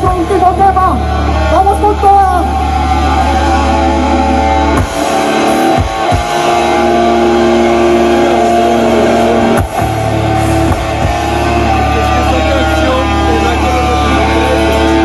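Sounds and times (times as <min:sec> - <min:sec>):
metal band playing: 0:00.0 - 0:15.0.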